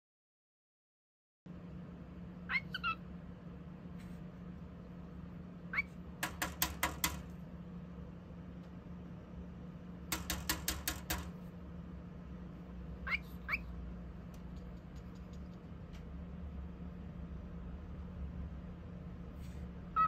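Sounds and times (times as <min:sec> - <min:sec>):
bird chirping: 0:02.4 - 0:03.1, 0:05.7 - 0:06.0, 0:13.0 - 0:13.8
bird beak tapping on plastic: 0:06.2 - 0:07.3, 0:10.1 - 0:11.4.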